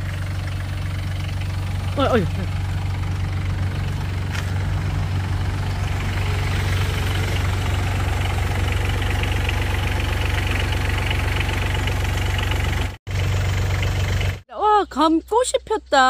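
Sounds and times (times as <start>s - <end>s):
engine chugging: 0.0s - 16.0s.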